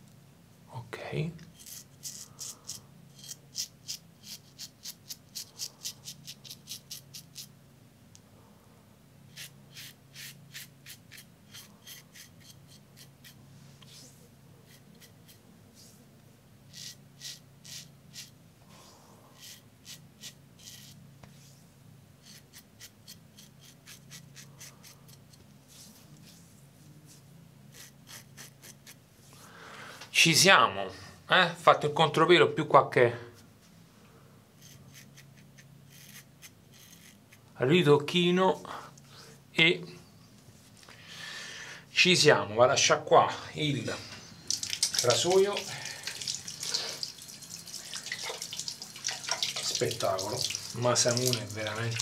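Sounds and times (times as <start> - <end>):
razor scraping stubble: 1.5 - 7.5, 9.3 - 14.0, 14.6 - 15.4, 16.7 - 18.4, 19.4 - 21.0, 22.2 - 25.4, 27.7 - 29.0, 34.6 - 37.4, 44.5 - 52.0.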